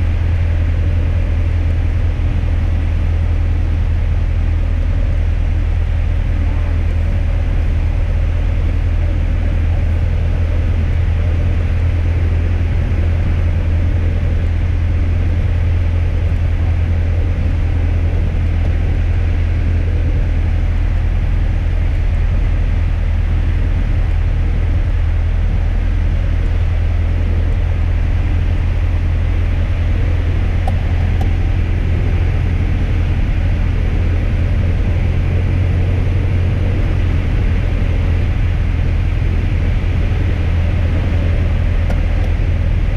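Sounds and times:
light aircraft engine drone: 0.0 - 42.9.

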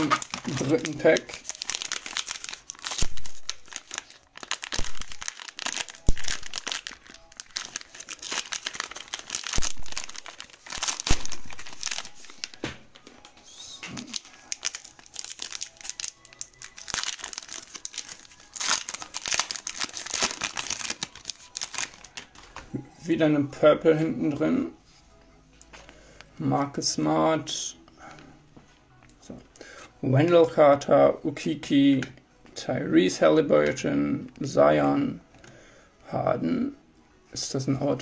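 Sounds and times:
foil tearing: 0.0 - 12.6, 13.9 - 22.3
foil wrapper crinkling: 0.0 - 22.6.

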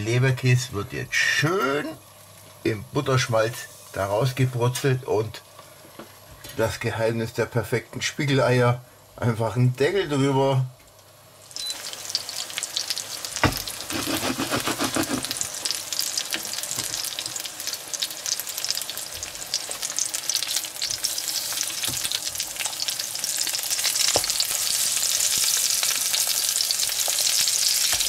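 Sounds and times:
meat sizzling in a pan: 11.1 - 28.0
spatula scraping a pan: 13.8 - 15.4.

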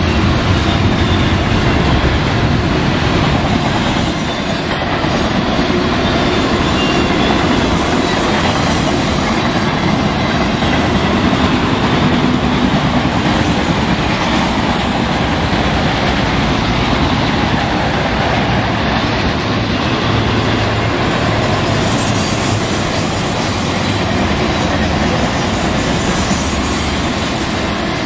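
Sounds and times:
train wheels rumbling on rail: 0.0 - 28.0
faint high squeal: 6.0 - 8.2.

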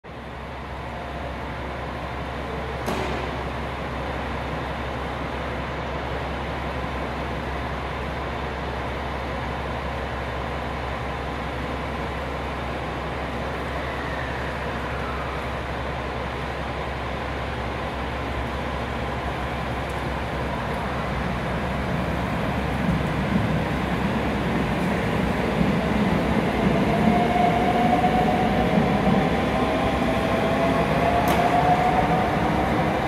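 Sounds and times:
train station platform drone: 0.0 - 33.0
sharp knock: 2.8 - 3.4.

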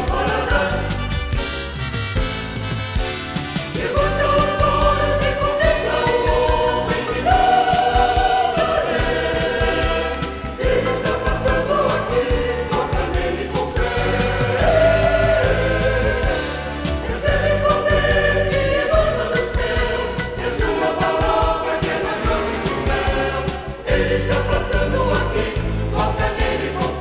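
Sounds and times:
choir singing gospel: 0.0 - 1.7, 3.3 - 27.0
orchestra accompaniment with beat: 0.0 - 27.0.

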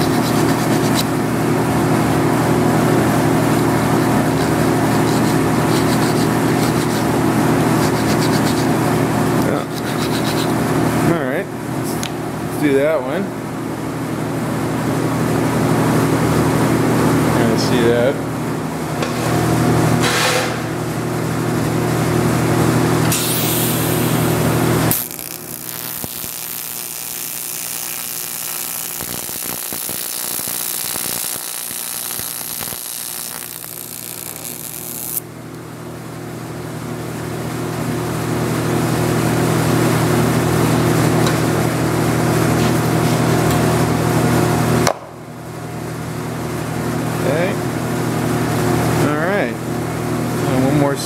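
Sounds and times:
electrical hum: 0.0 - 48.9
welding arc hissing and crackling: 23.1 - 35.2.

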